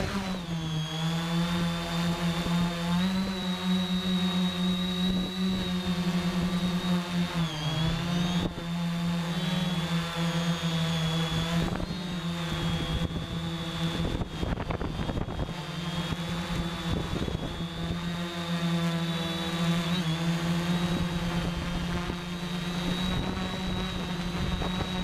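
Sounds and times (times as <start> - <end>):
drone motors buzzing: 0.0 - 25.0
gusty wind noise: 11.3 - 18.2, 20.8 - 25.0.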